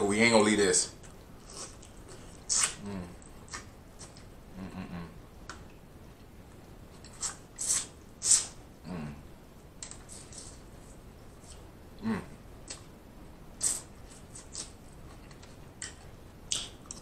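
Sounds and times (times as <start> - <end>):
sucking on fingers: 1.4 - 5.1, 7.0 - 9.1, 13.6 - 14.8
short low hum: 4.4 - 5.3
wet lip smacks: 15.8 - 17.0.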